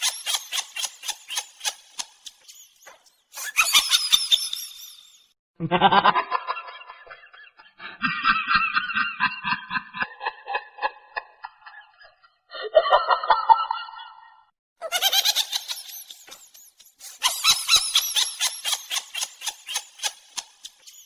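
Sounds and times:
deeper laugh: 5.6 - 15.2
people laughing: 5.6 - 16.4.

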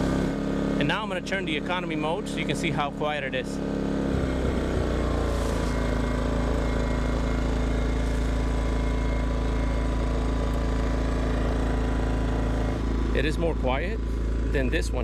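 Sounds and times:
generator engine running: 0.0 - 15.0.

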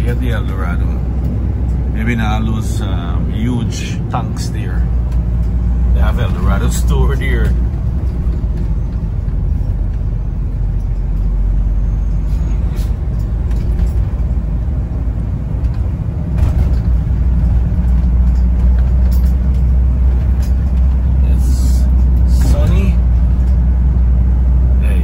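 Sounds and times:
car engine and tyre rumble: 0.0 - 25.0.

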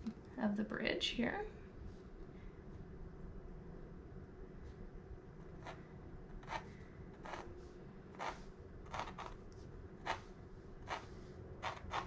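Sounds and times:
pencil sketching on canvas: 5.6 - 5.8, 6.4 - 7.5, 8.2 - 9.3, 10.8 - 12.0.

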